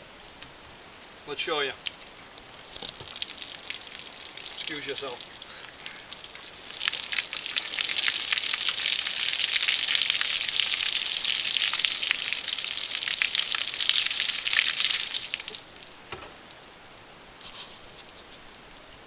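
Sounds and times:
small crackles: 0.4s - 10.8s
water pouring and splashing: 0.9s - 16.8s.

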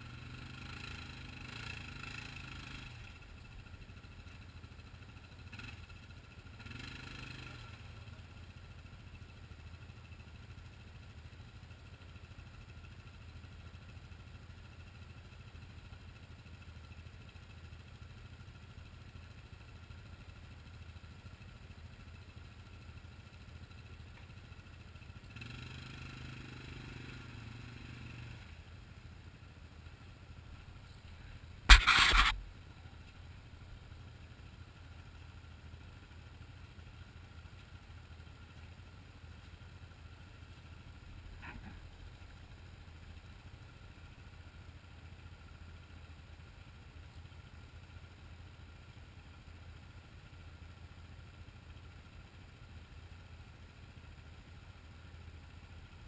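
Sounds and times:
atv engines idling: 0.0s - 56.0s
loud short thump: 31.6s - 32.4s.

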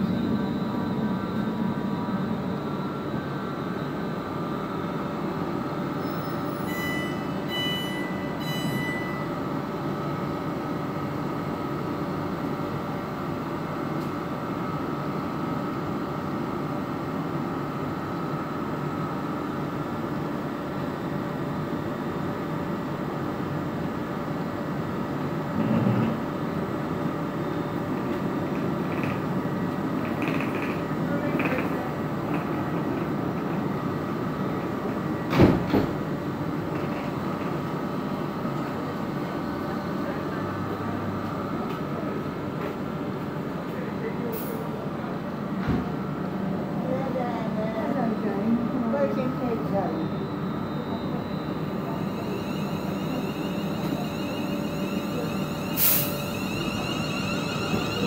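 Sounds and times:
train wheels and motors running: 0.0s - 58.0s
electric train humming: 44.7s - 58.0s
air release hiss: 55.7s - 56.2s.

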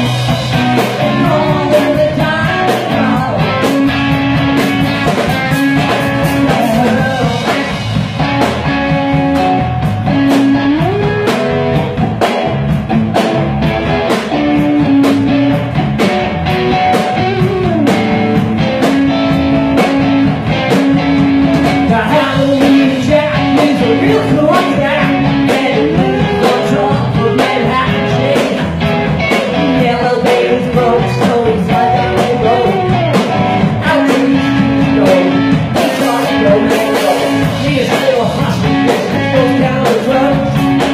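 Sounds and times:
drum kit steady beat: 0.0s - 40.9s
electric guitars: 0.0s - 40.9s
man singing into a microphone: 0.8s - 3.7s, 6.3s - 7.8s, 21.8s - 40.9s.

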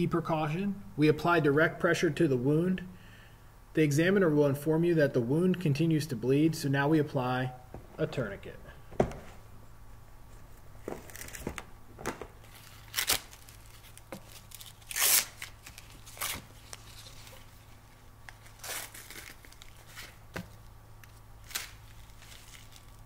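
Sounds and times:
velcro strap ripping: 11.0s - 17.3s, 18.3s - 20.2s, 21.0s - 23.0s.

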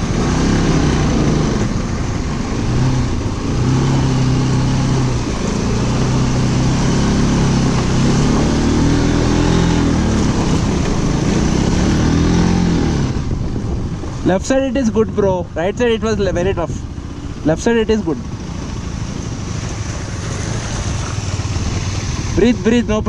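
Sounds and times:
vehicle engine revving: 0.0s - 14.2s
steady rushing noise: 0.0s - 23.0s.

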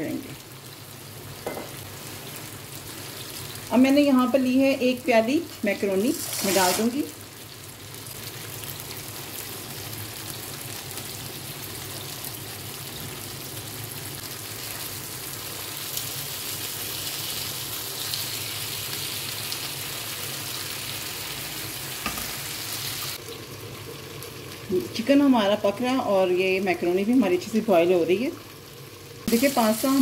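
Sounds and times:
chicken sizzling in hot oil: 0.0s - 30.0s.

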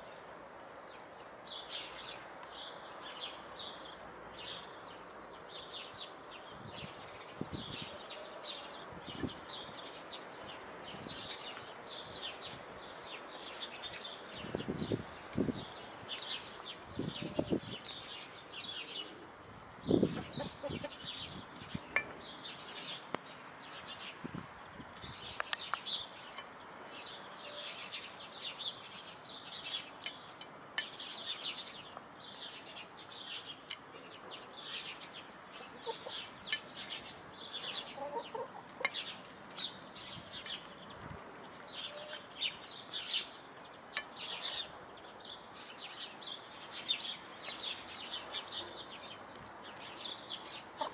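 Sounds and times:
small birds chirping: 0.0s - 50.9s
hens clucking: 20.2s - 21.0s, 35.6s - 36.3s, 37.9s - 39.0s.

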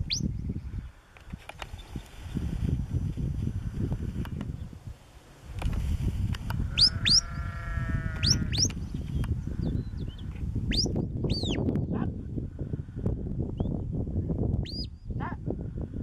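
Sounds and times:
sheep bleating: 6.8s - 8.6s.

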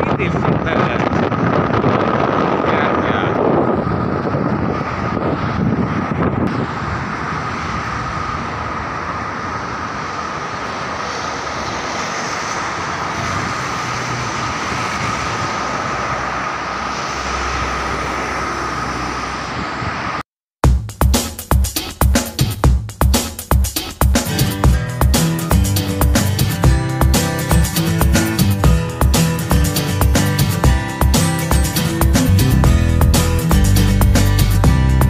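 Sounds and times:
low rumble: 0.0s - 18.2s
passing cars: 0.0s - 20.2s, 24.2s - 35.0s.

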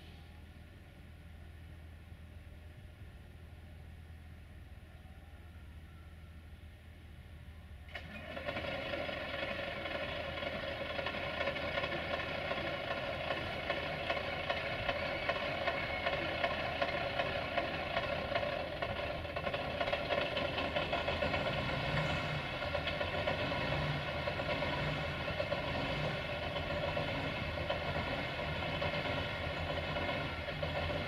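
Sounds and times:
diesel engine starting up: 7.8s - 31.0s.

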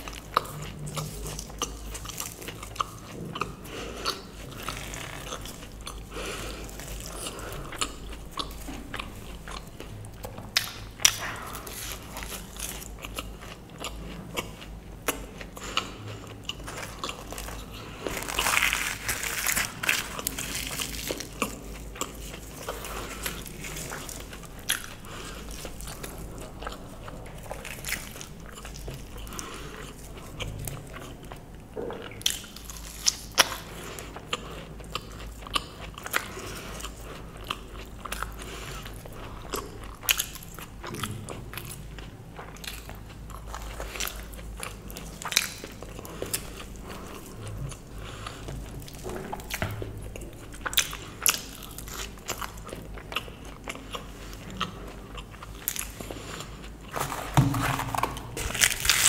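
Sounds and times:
person chewing food: 0.0s - 59.0s
small crunches: 16.6s - 26.8s, 55.5s - 59.0s.

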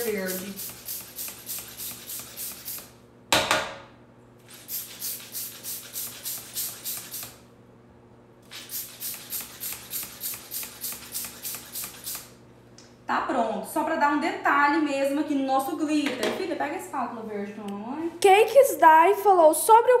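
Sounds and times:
glitter pump hissing puffs: 4.4s - 7.4s, 8.4s - 12.4s.

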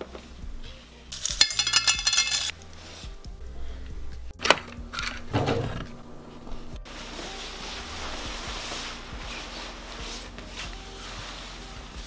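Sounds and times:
small hard pieces clattering: 1.2s - 2.6s.

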